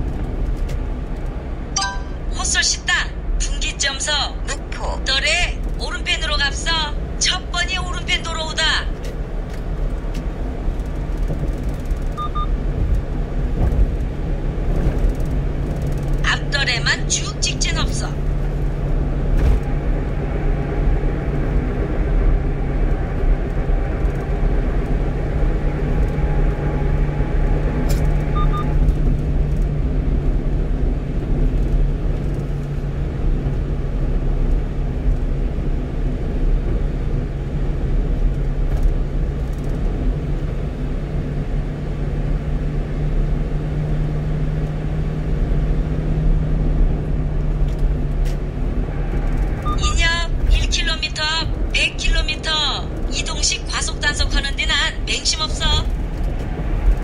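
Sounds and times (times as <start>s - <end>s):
truck engine drone: 0.0s - 57.0s
tyre and road noise: 0.0s - 57.0s.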